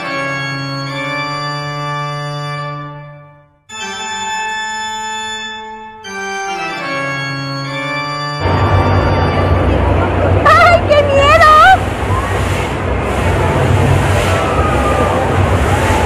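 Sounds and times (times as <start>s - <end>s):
organ chords: 0.0s - 11.2s
noisy crowd hubbub: 8.4s - 16.0s.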